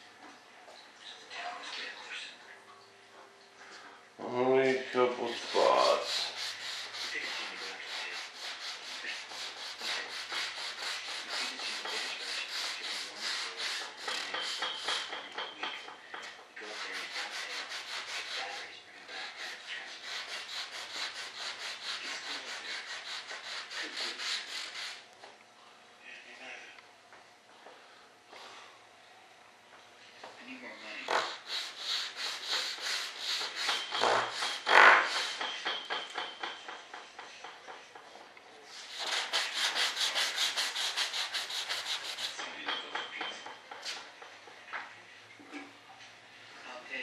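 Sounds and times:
hand sanding strokes: 0:04.6 - 0:15.5, 0:16.6 - 0:25.0, 0:31.1 - 0:37.8, 0:38.7 - 0:44.1.

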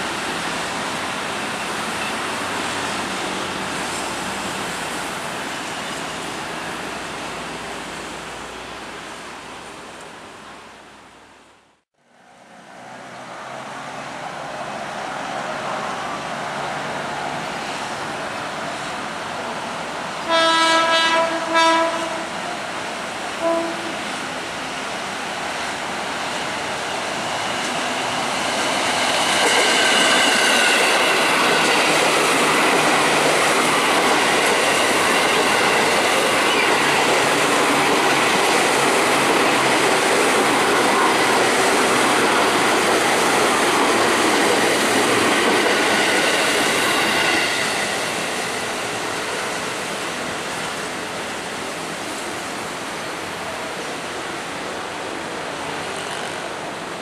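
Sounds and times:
train wheels rumbling on rails: 0:13.5 - 0:57.0
train horn blasts: 0:20.3 - 0:22.4, 0:23.4 - 0:24.0.

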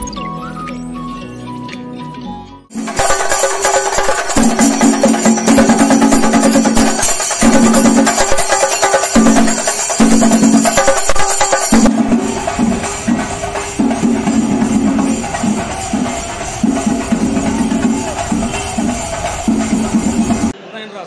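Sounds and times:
dull drum rhythm: 0:02.7 - 0:20.6
tambourine jingling: 0:02.7 - 0:20.6
crowd chanting and shouting: 0:12.1 - 0:20.5.

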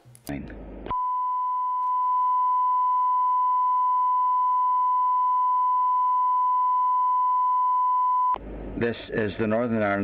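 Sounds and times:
steady sine test tone: 0:00.9 - 0:08.8.

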